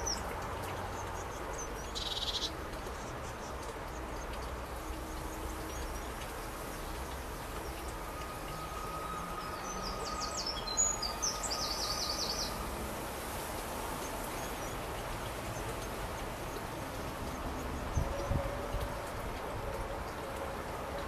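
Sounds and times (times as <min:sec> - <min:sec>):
outdoor background noise: 0:00.0 - 0:21.0
bird singing with trill: 0:01.6 - 0:02.5, 0:09.3 - 0:12.6.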